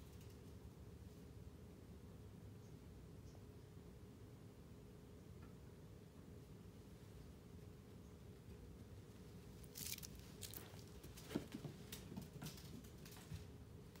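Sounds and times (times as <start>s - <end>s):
faint rustling: 8.9s - 13.6s.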